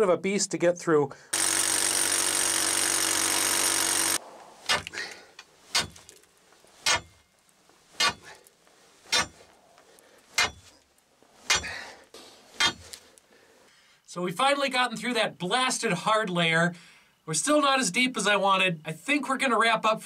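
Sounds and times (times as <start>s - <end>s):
electric chisel hammer: 1.3s - 4.9s
steel bar clanking on rock: 4.7s - 5.0s, 5.7s - 6.2s, 6.8s - 7.3s, 8.0s - 8.3s, 9.1s - 9.5s, 10.4s - 10.8s, 11.5s - 11.8s, 12.6s - 12.9s.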